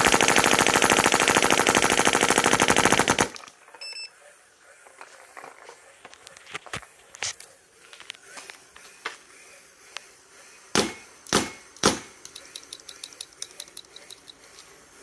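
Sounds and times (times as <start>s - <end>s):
paintball marker shots: 10.7s - 12.2s.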